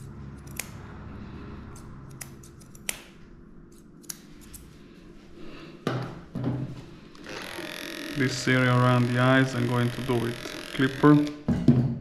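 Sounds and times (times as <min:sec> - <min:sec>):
scissors snipping hair: 0:00.0 - 0:00.9, 0:01.6 - 0:04.7.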